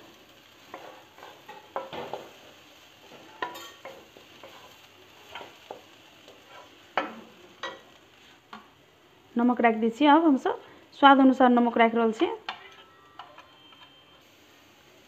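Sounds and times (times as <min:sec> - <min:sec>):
spatula scraping a metal pan: 0:06.3 - 0:07.1.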